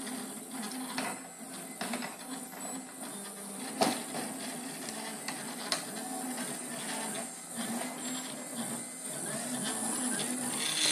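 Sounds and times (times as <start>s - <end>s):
stepper motors whining: 4.9s - 10.9s.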